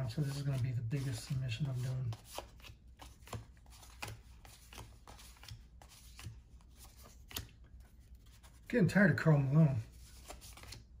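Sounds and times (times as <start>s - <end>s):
cards being flicked: 2.1s - 7.9s, 10.1s - 10.9s.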